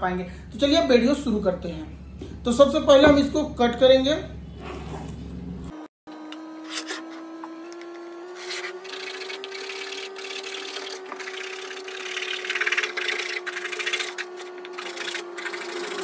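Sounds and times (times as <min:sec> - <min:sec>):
blade sawing plastic: 0:06.3 - 0:16.0.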